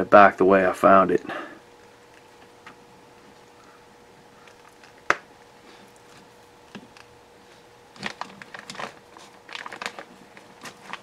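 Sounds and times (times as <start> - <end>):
small clicks and crinkly handling: 8.0 - 11.0.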